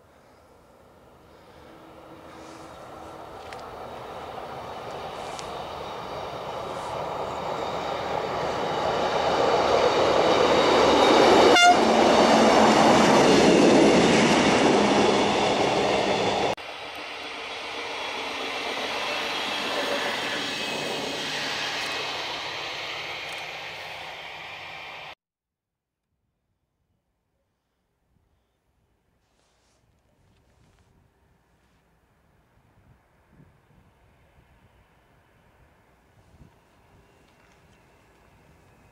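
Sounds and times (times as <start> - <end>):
rail rumble: 0.0 - 25.2
rail vehicle engine and wheels: 0.0 - 25.2, 29.5 - 38.9.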